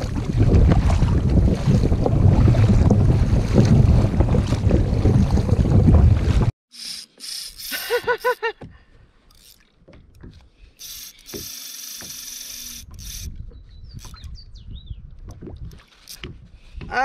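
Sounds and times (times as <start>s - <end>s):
fishing reel drag buzzing: 6.7s - 8.4s, 9.3s - 9.6s, 10.8s - 13.3s
reel handling clicks: 6.8s - 8.4s, 9.3s - 13.3s.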